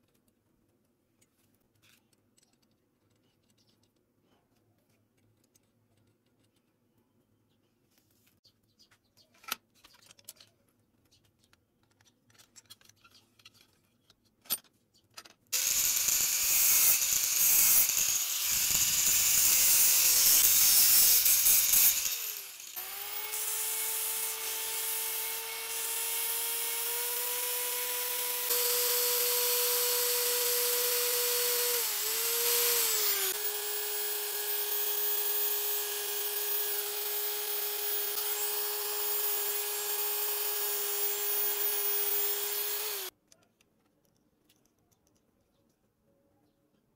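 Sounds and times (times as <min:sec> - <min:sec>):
bench grinder grinding steel: 0:15.6 - 0:43.1
electric drill motor tone: 0:15.6 - 0:43.1
file scraping spinning steel: 0:15.6 - 0:43.1
metal clicks and taps: 0:43.3 - 0:45.8.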